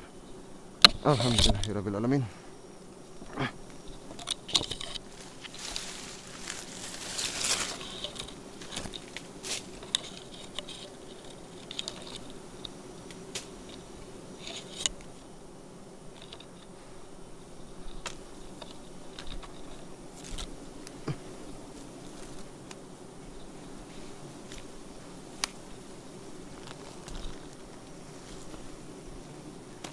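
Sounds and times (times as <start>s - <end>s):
honeybees humming: 0.0s - 29.9s
twigs and leaves rustling and snapping: 3.2s - 15.2s, 16.1s - 16.7s, 17.8s - 21.2s, 21.8s - 22.8s, 23.9s - 25.8s, 26.4s - 28.8s.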